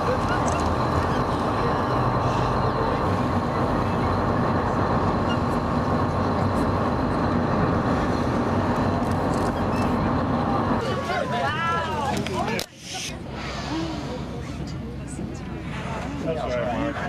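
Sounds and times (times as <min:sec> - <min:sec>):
boat engine running: 0:00.0 - 0:12.5.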